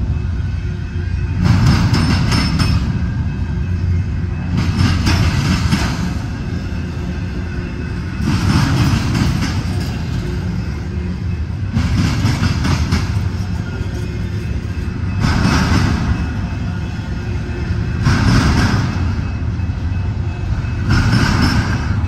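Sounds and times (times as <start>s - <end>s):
freight cars rattling: 0.0s - 22.0s
freight train wheels rumbling: 0.0s - 22.0s.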